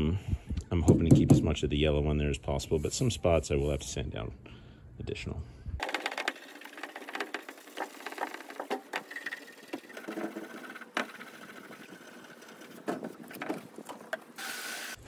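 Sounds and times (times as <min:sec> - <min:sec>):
scrubbing pad scraping metal: 0:05.8 - 0:14.4.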